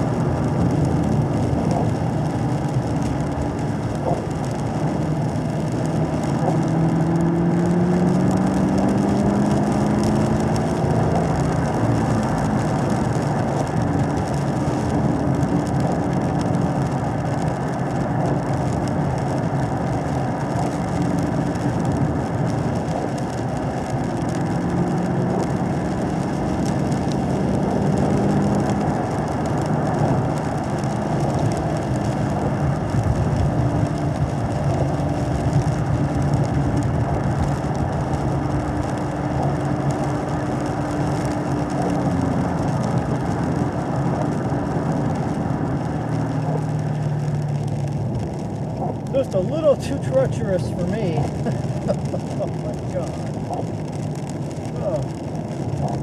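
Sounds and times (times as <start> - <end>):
car engine pulling at low revs: 0.0 - 56.0.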